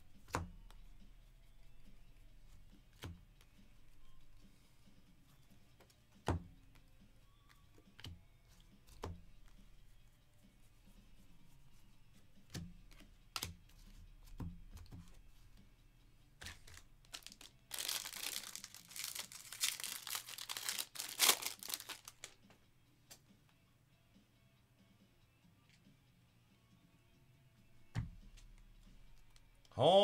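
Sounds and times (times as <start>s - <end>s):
trading cards clicking: 12.5s - 15.0s, 16.4s - 22.4s
foil wrapper ripped and crinkled: 16.4s - 22.4s.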